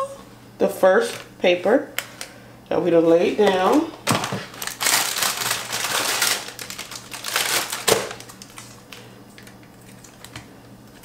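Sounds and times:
plastic packaging crinkling: 0:03.4 - 0:11.0.

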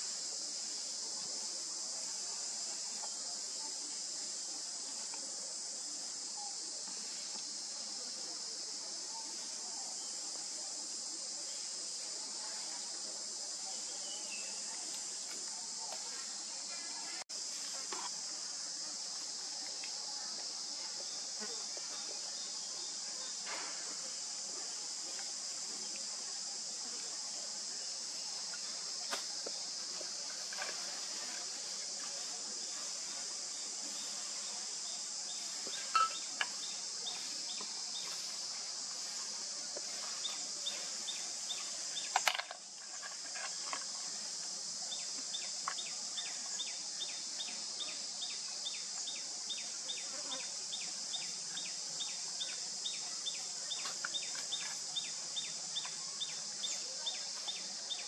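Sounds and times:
high-pitched insect drone: 0:35.4 - 0:38.4.

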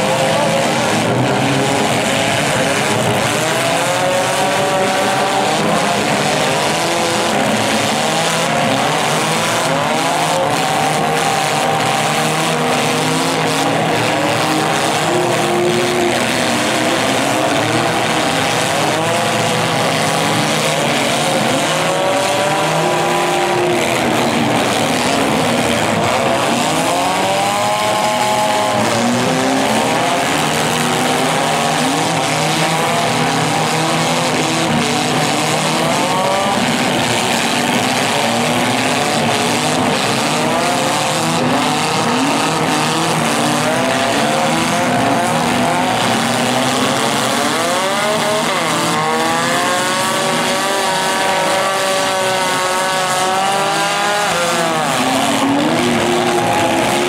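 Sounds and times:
many car engines revving: 0:00.0 - 0:57.0.

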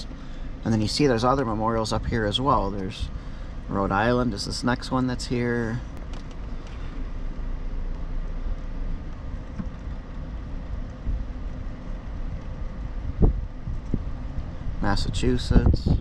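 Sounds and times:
car rumbling on road: 0:00.0 - 0:16.0
wind on microphone: 0:12.2 - 0:16.0.

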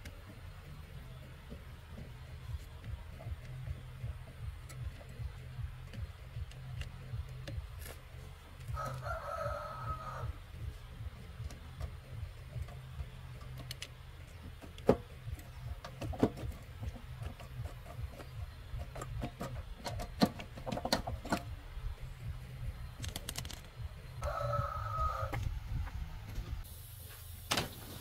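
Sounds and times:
steady low rumble: 0:00.0 - 0:27.0
sharp clicks and knocks: 0:01.4 - 0:09.1, 0:10.6 - 0:21.6, 0:22.9 - 0:24.2.

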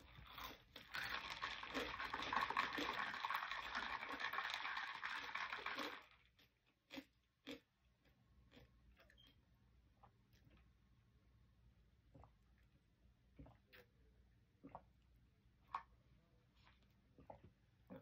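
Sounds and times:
slurping through a straw: 0:00.0 - 0:06.4.

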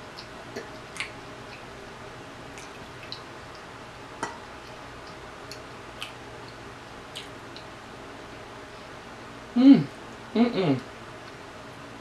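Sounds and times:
wet chewing: 0:00.0 - 0:01.7, 0:02.5 - 0:07.7
lip smacks: 0:00.1 - 0:01.7, 0:02.5 - 0:07.7.

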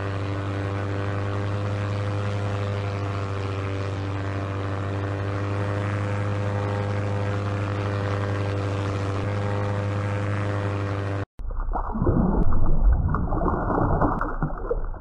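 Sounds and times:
propeller airplane drone: 0:00.0 - 0:11.3.

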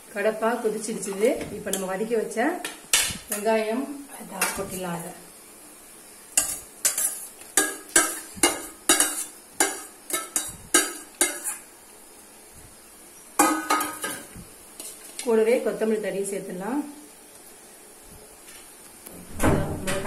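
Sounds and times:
metal spoon scraping steel pan: 0:06.4 - 0:11.7.

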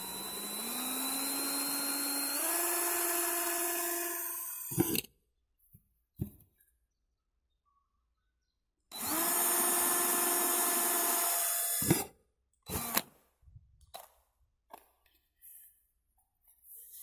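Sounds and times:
cordless drill motor whine: 0:00.0 - 0:05.0, 0:08.9 - 0:12.1, 0:12.7 - 0:13.0
drill drilling plastic pipe: 0:00.0 - 0:05.1, 0:08.9 - 0:12.1, 0:12.7 - 0:13.1.

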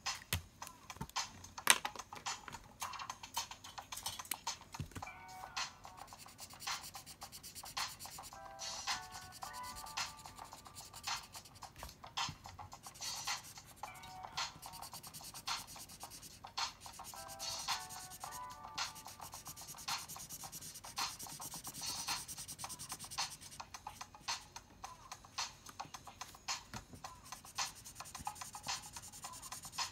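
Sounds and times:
background music with beat: 0:00.0 - 0:29.9
pencil scratching on paper: 0:06.0 - 0:11.8, 0:12.8 - 0:24.0, 0:27.2 - 0:29.9.

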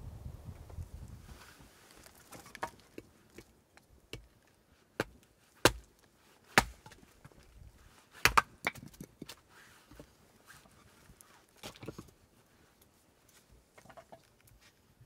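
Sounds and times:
hatchet chopping wood: 0:05.0 - 0:05.9, 0:06.5 - 0:07.0, 0:08.2 - 0:09.0.

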